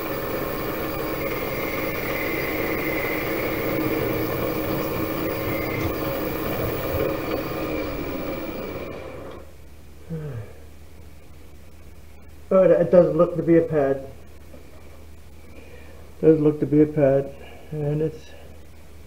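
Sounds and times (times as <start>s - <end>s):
metal lathe running: 0.0s - 9.4s.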